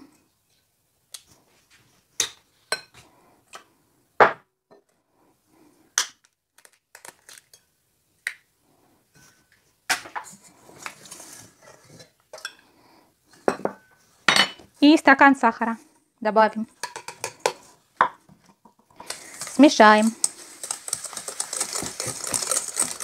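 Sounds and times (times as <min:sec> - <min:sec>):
spoon cracking eggshells: 0:06.0 - 0:08.4, 0:19.0 - 0:23.0
eggs clattering into steel bowl: 0:16.7 - 0:23.0.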